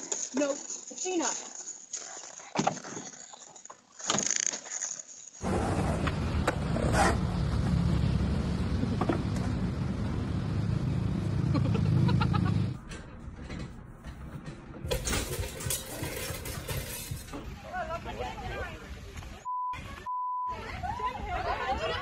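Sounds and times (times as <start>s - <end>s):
skateboard wheels rolling on paving: 0.0s - 12.8s
clattering crash of falling objects: 14.8s - 17.6s.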